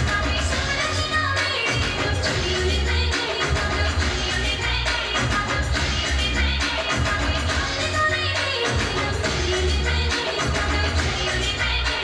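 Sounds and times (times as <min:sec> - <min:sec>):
dance music with steady beat: 0:00.0 - 0:12.0.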